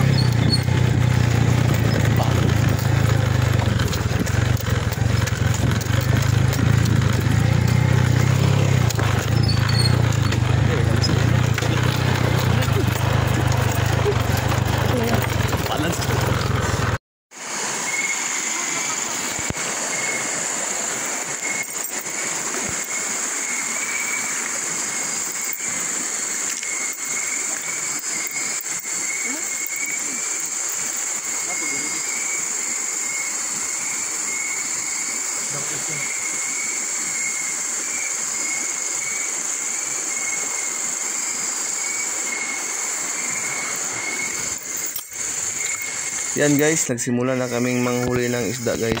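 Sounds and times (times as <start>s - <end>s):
knocks and rattles: 0.0s - 17.0s
motorcycle engine running: 0.0s - 17.0s, 42.8s - 47.0s
river flowing over stones: 0.0s - 49.0s.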